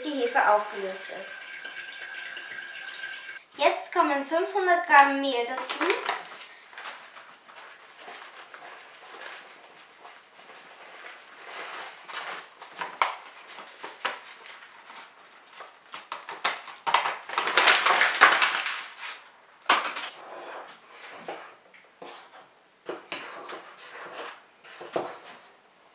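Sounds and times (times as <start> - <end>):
paper bag rustling: 6.0 - 15.9, 17.2 - 19.3.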